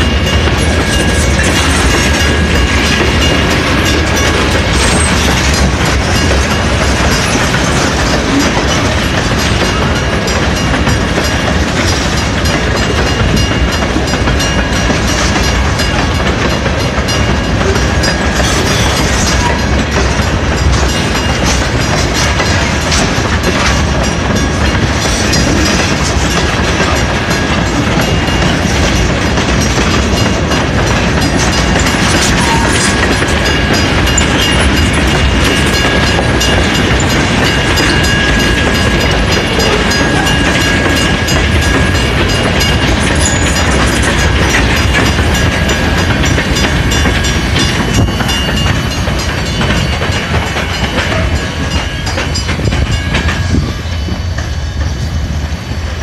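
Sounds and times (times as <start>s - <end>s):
freight train wheels rumbling on rails: 0.0s - 56.0s.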